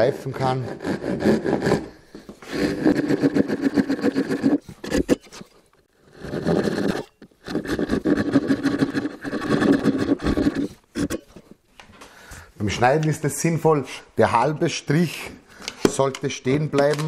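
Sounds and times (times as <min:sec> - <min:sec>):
hand saw rasping through wood: 0:00.3 - 0:05.4, 0:06.0 - 0:11.2.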